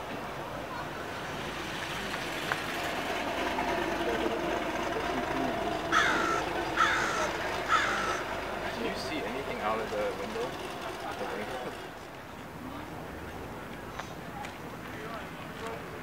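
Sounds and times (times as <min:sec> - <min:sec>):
outdoor background noise: 0:00.0 - 0:16.0
loud falling bird calls: 0:05.6 - 0:08.6.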